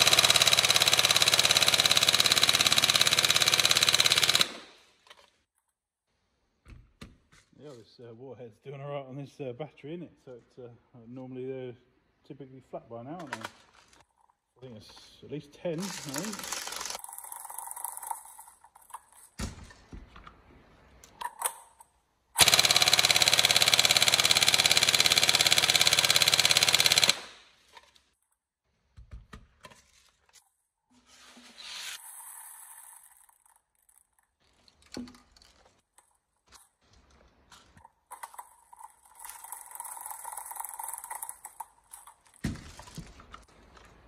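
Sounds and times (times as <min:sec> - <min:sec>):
airsoft rifle full-auto burst: 0:00.0 - 0:04.9, 0:15.9 - 0:18.0, 0:22.4 - 0:27.5.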